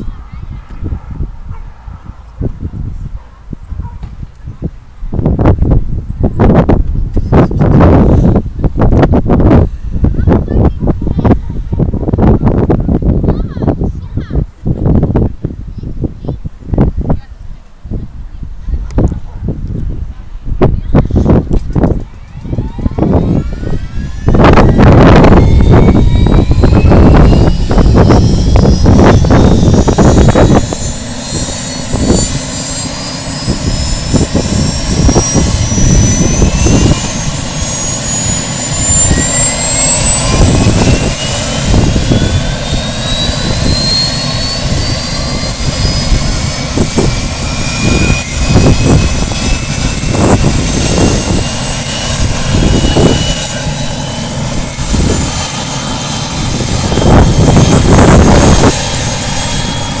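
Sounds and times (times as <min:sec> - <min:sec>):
engine and rotor rumble: 0:00.0 - 1:00.0
helicopter turbine whine: 0:00.0 - 1:00.0.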